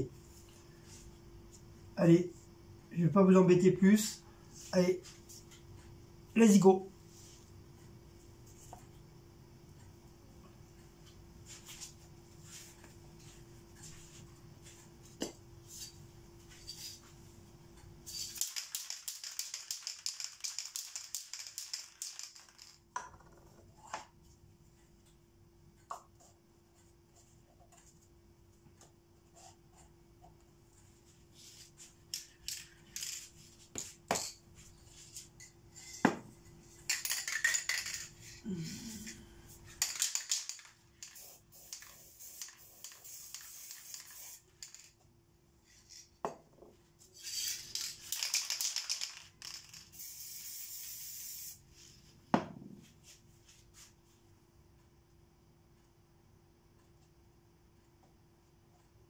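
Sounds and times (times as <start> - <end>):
spray paint can hissing: 18.1 - 22.7, 39.8 - 44.9, 47.2 - 51.6.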